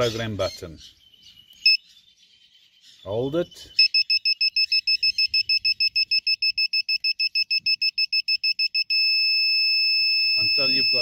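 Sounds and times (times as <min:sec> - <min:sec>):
constant buzz: 0:03.8 - 0:11.0
piezo buzzer beeping rapidly: 0:03.8 - 0:11.0.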